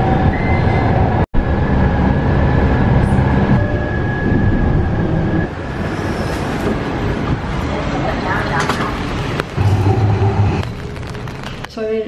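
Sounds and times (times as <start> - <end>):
train rumble: 0.0 - 12.0.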